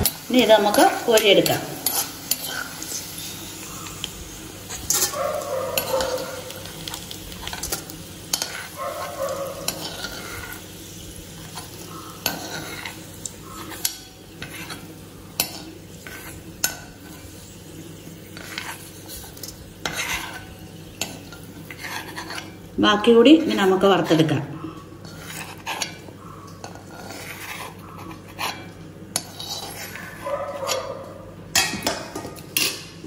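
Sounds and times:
hot oil sizzling: 0.0s - 24.0s
spoon scraping and knocking pan: 4.7s - 10.8s, 11.4s - 17.3s, 18.2s - 22.6s.

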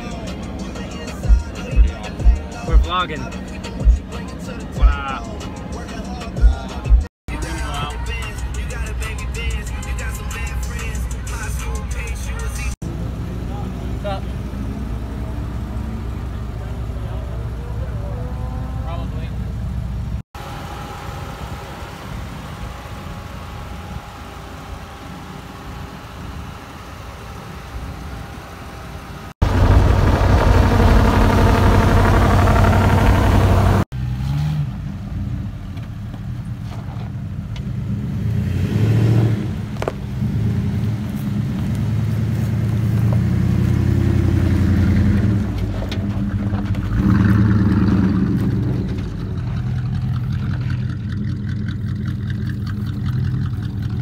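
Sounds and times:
steady engine hum: 0.0s - 54.0s
truck engine revving unevenly: 0.0s - 54.0s
loud rushing noise: 29.4s - 33.9s.

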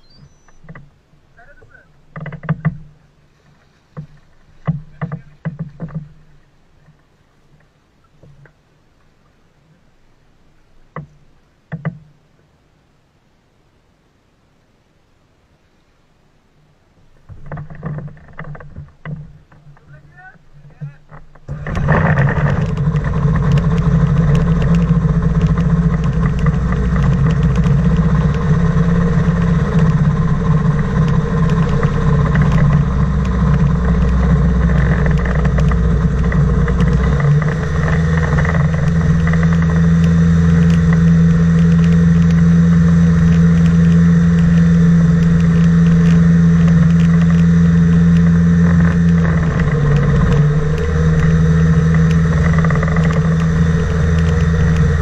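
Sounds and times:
propeller engine droning: 17.2s - 55.0s.

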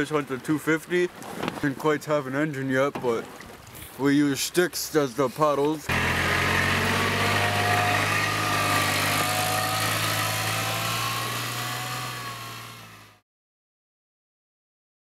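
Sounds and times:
utility vehicle engine running: 5.9s - 13.2s.

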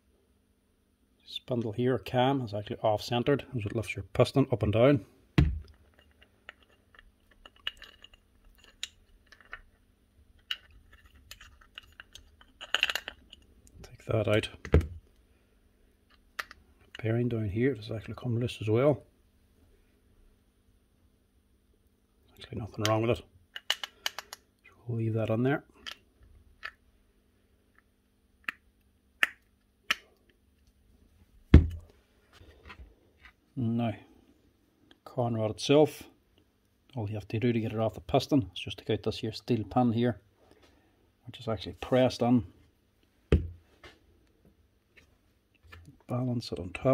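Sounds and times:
heavy knock on workbench: 5.4s - 5.6s
soft thump: 5.4s - 5.7s, 43.3s - 43.6s
metal parts clicking and scraping: 5.6s - 9.8s, 10.4s - 13.5s, 23.5s - 24.4s.

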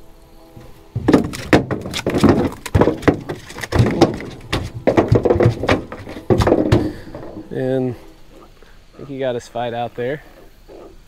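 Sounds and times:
fish flopping against boat hull: 1.0s - 7.5s.

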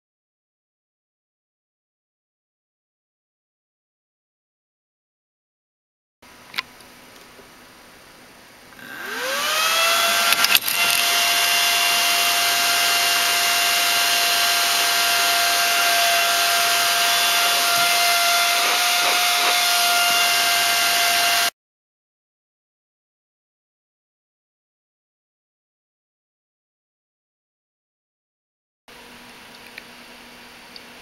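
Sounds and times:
cooling fan high whine: 6.2s - 21.5s, 28.9s - 31.0s.

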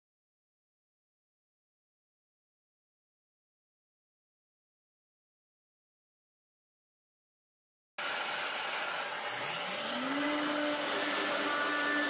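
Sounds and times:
electric motor spinning up: 8.0s - 12.0s.

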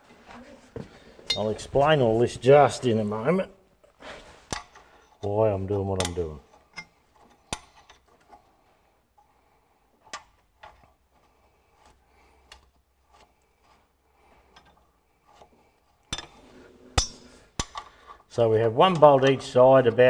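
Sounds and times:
metallic clicks of hand tools: 17.0s - 18.0s.

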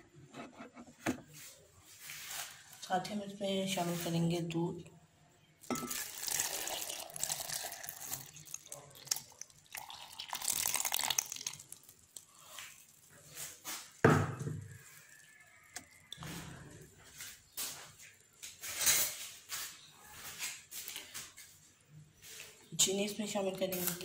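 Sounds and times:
milk pouring into blender jar: 5.6s - 13.2s
bubbling: 5.6s - 14.0s.

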